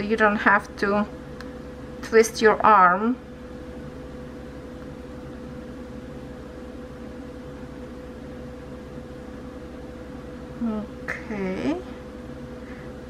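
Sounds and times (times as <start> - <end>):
machine hum and hiss: 0.0 - 13.0.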